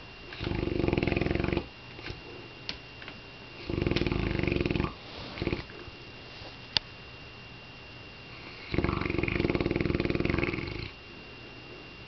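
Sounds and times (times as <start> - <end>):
dog snoring: 0.3 - 2.2, 3.6 - 5.8, 8.3 - 11.0.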